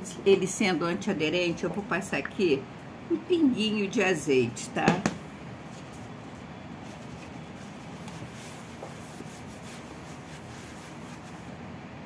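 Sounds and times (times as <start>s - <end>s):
paper towel rubbing on baking tray: 7.5s - 11.6s.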